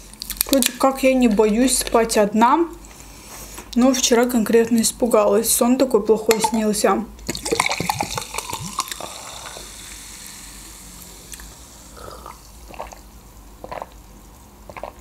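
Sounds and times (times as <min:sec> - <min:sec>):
person swallowing: 0:07.3 - 0:09.8
drink pouring into a glass: 0:07.3 - 0:10.1.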